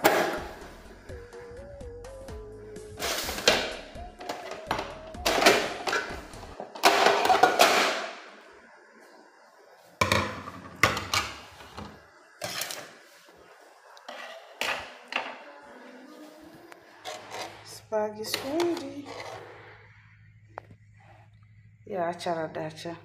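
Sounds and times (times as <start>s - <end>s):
dishes clattering: 3.0s - 8.3s, 10.0s - 12.9s, 14.0s - 15.4s.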